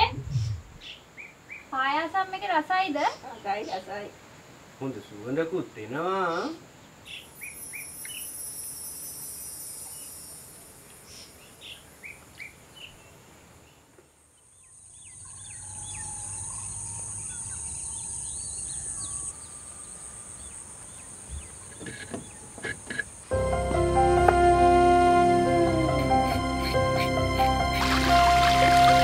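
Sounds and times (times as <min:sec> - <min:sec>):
high-pitched insect drone: 0:07.3 - 0:10.8, 0:22.9 - 0:29.0
birds chirping: 0:14.6 - 0:29.0.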